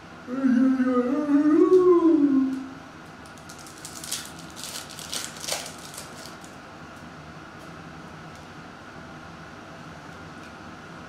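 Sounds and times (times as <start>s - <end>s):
foil wrapper crinkling and tearing: 3.2s - 6.6s.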